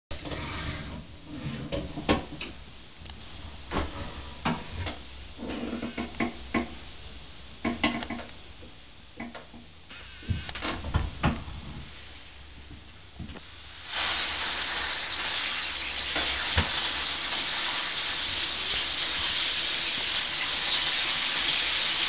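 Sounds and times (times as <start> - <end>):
short hiss: 13.4 - 20.2.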